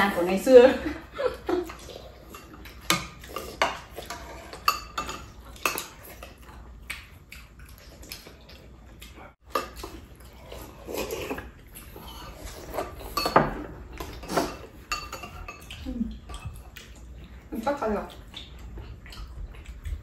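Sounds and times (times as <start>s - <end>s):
utensils clinking against bowls: 0.0s - 6.4s, 11.0s - 16.6s.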